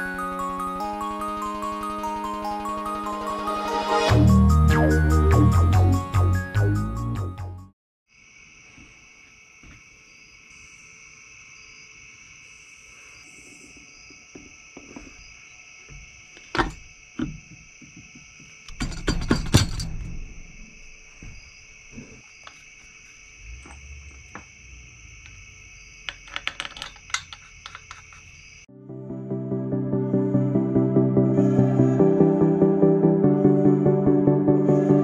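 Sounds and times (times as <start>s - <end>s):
high-pitched drone: 0.0s - 6.0s
metal tools clinking on workbench: 18.7s - 20.2s, 26.1s - 28.4s.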